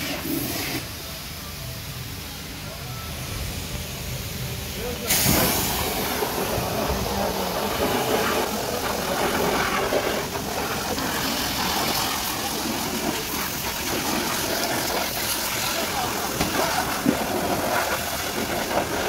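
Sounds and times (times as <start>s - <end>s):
pressure washer water spray: 0.0s - 1.3s, 3.4s - 19.0s.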